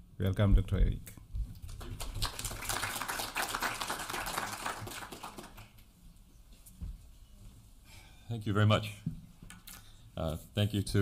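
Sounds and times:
audience applauding: 1.7s - 5.8s.

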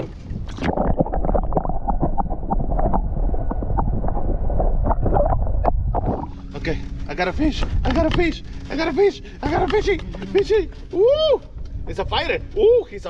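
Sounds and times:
underwater clicks and pops: 0.0s - 4.2s
water splash: 0.0s - 6.5s
muffled underwater sloshing: 0.0s - 10.9s.

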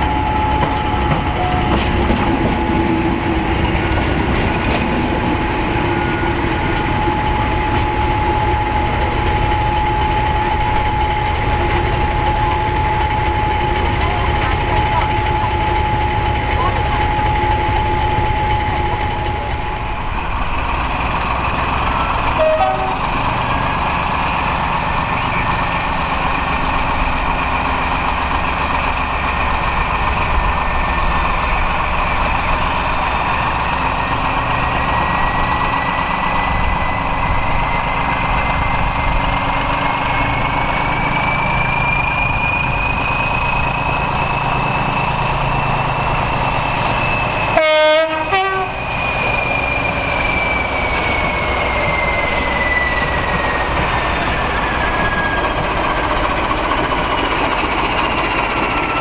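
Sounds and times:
high whine: 0.0s - 21.0s
diesel locomotive engines working: 0.0s - 59.0s
two-note horn blast: 22.4s - 23.0s, 47.6s - 48.8s.

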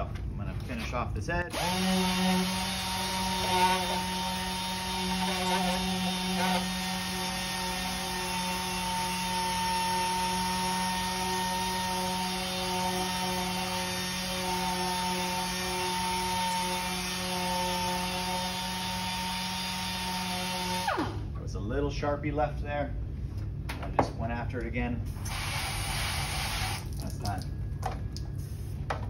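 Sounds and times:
air sander whining: 1.5s - 21.2s.

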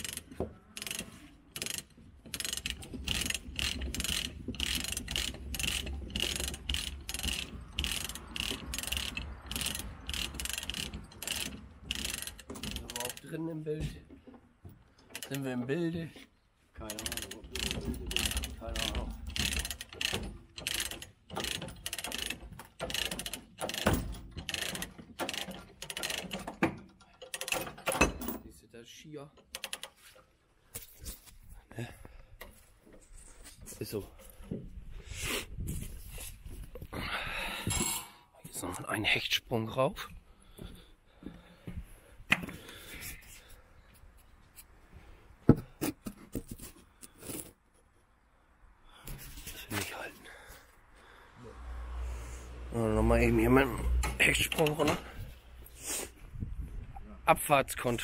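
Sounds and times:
ratchet pawl clicking: 0.0s - 13.3s, 16.9s - 26.4s, 27.2s - 27.7s, 29.5s - 29.9s
microphone handling noise: 34.6s - 37.0s.

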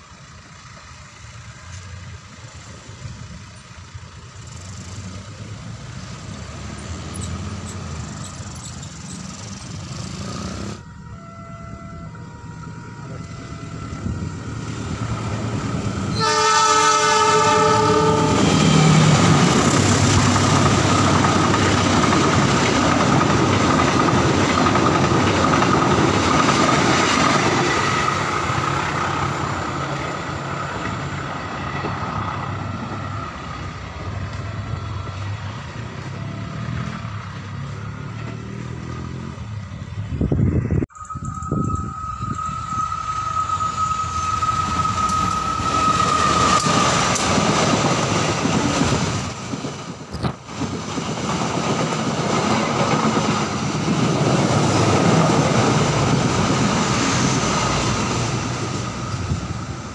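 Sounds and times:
train wheels rumbling on rails: 0.0s - 10.9s, 11.7s - 59.9s
train horn: 10.5s - 15.4s, 16.1s - 19.1s, 41.0s - 47.2s.

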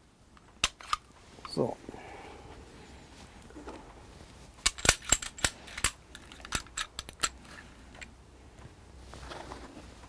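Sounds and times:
magazines being handled: 0.4s - 1.6s, 4.5s - 8.2s
pistol slides clicking: 0.6s - 1.0s, 4.6s - 7.4s.

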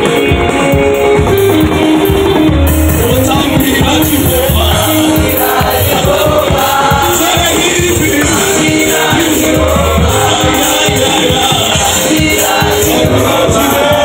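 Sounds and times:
live band with drums and keyboard: 0.0s - 14.0s
boys singing gospel song: 3.3s - 14.0s.

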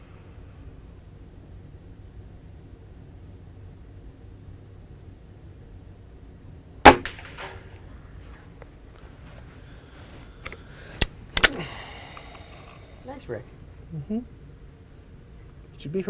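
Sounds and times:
air rifle shot: 6.8s - 7.8s
rifle handling clicks: 10.4s - 11.6s.

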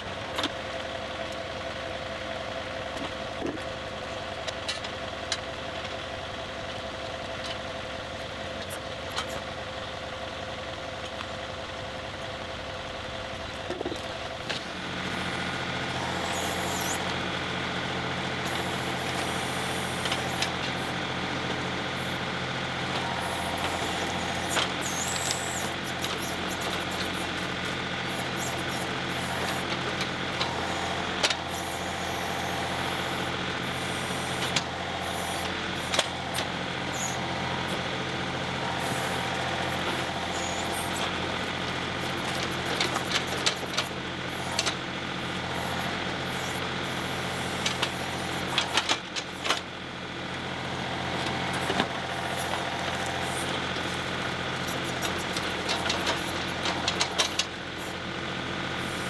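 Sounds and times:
tractor diesel engine idling: 0.0s - 59.0s
backhoe bucket digging: 22.7s - 37.9s, 38.5s - 49.7s, 50.6s - 57.8s.

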